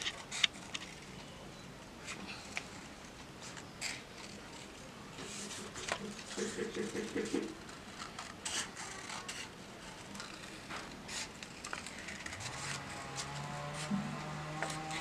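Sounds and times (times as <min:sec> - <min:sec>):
paper rustling: 0:07.4 - 0:14.0.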